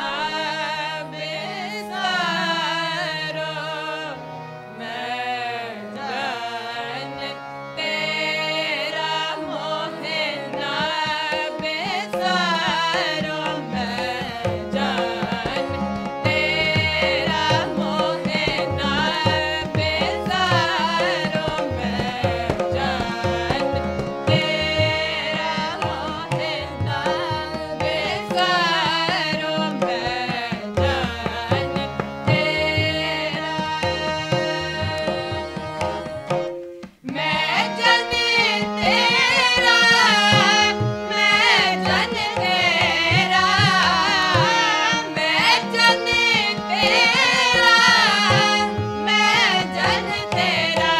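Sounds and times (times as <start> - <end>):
harmonium held reeds: 0.0 - 50.9
voices singing together: 0.0 - 50.9
tabla drumming: 10.0 - 50.9.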